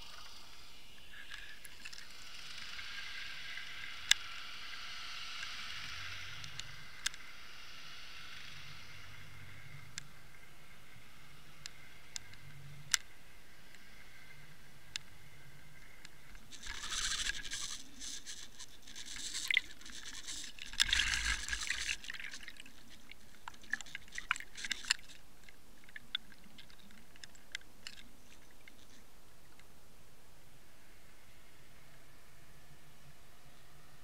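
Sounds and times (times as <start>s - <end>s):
muffled underwater splashing: 15.8s - 29.0s
bubbles clicking and popping: 19.2s - 25.2s.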